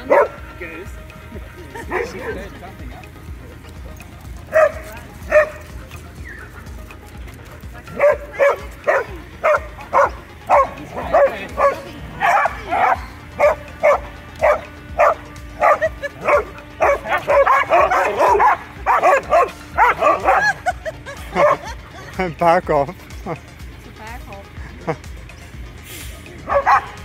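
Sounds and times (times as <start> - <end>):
dogs barking: 0.0 - 0.8, 1.7 - 2.7, 4.3 - 22.1, 26.4 - 27.0.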